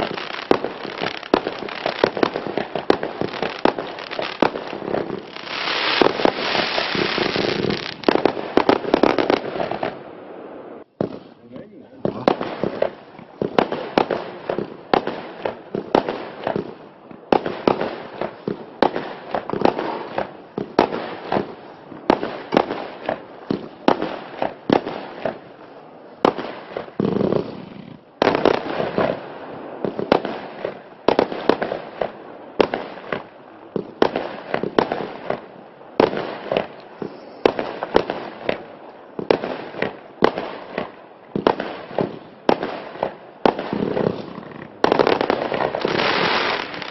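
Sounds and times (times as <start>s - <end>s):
fireworks bangs: 0.0s - 25.6s, 26.2s - 46.9s.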